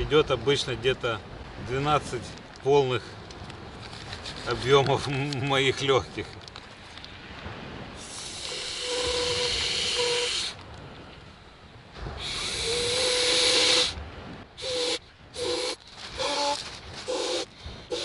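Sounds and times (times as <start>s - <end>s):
breath hissing into valve: 8.0s - 10.6s, 12.2s - 14.0s, 14.6s - 18.0s.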